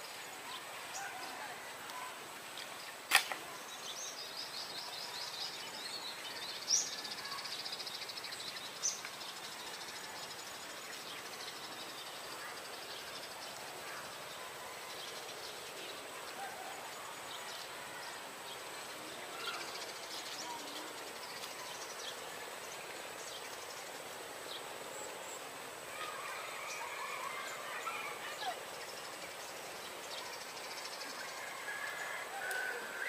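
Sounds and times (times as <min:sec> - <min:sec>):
steady hiss: 0:00.0 - 0:33.0.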